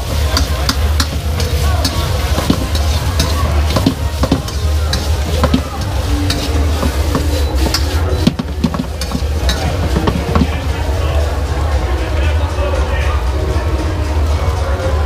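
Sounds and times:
metal spatula scraping a wok: 0.0 - 10.6
vegetables sizzling in a wok: 0.0 - 10.8.

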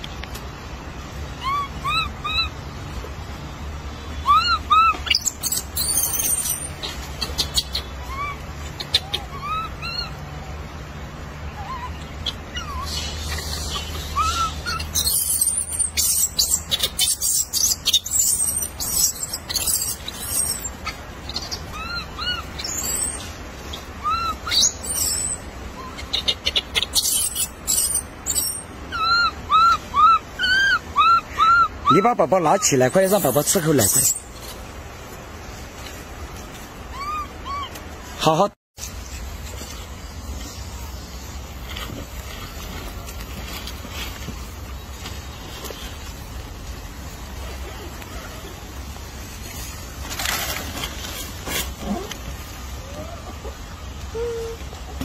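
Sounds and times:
short chirping calls: 3.9 - 10.8, 11.4 - 34.5
rustling dry leaf litter: 38.8 - 55.0.

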